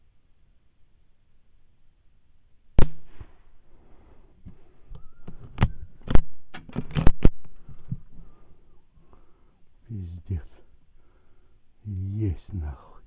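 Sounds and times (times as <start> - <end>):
rifle shot: 2.8 - 3.4
sharp clicks and knocks: 4.9 - 8.1.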